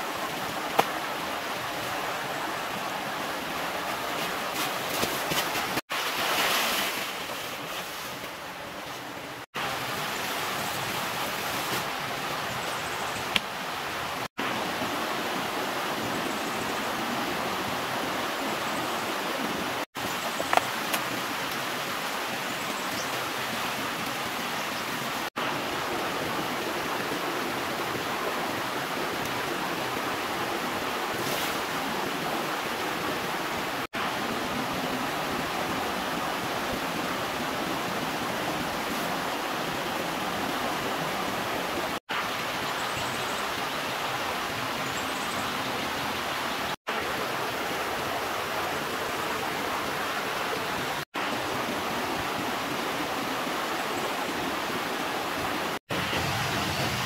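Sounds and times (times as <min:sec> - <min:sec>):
stream rushing: 0:00.0 - 0:57.0.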